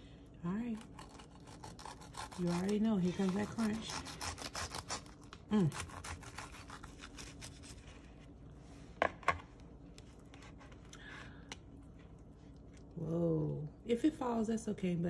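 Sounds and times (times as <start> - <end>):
knife cutting crunchy wrap: 0.8 - 8.2, 10.3 - 10.9.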